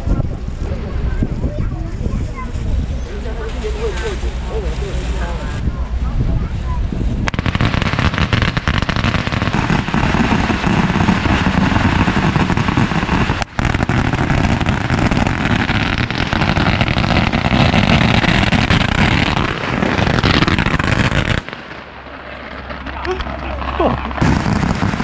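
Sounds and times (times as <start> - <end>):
firecrackers crackling: 1.8 - 5.7, 6.5 - 25.0.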